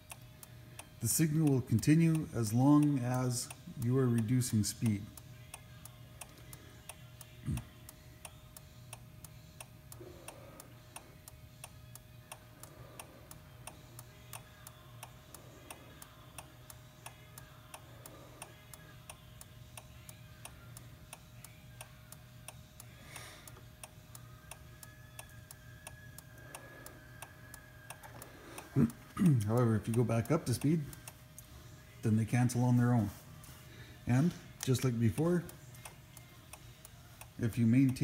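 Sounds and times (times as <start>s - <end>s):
low steady hum: 0.0s - 38.0s
turn signal ticking: 23.5s - 31.2s.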